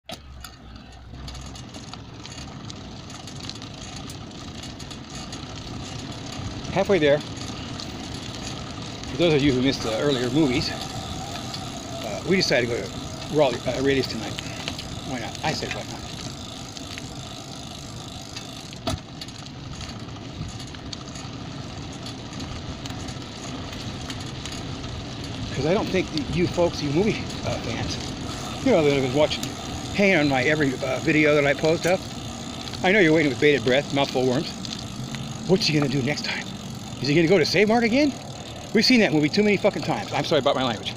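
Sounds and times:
bicycle road noise: 0.0 - 40.9
street traffic noise: 0.0 - 40.9
light clicks and rattles: 0.1 - 40.9.

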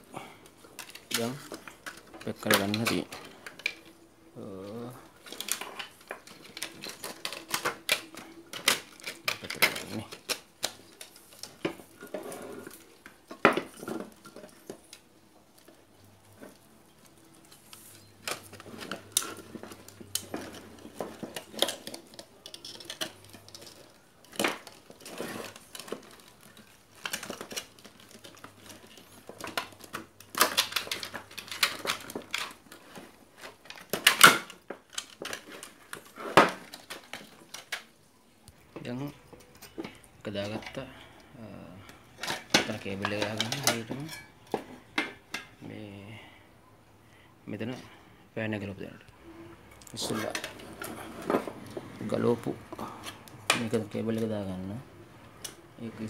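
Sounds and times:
metallic clicks and clatter: 16.4 - 37.9.

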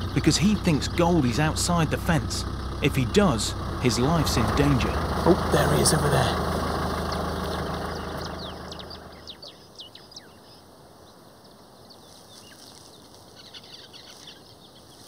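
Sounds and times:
vehicle engine idling: 0.0 - 9.7
small birds chirping: 0.0 - 15.0
faint bush ambience hiss: 3.3 - 15.0.

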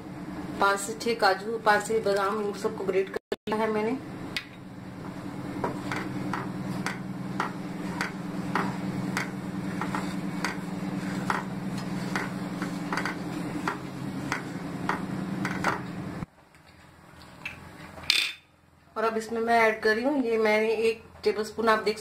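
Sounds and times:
steady low hum: 0.0 - 17.9
spatula scraping metal pan: 6.7 - 14.6.

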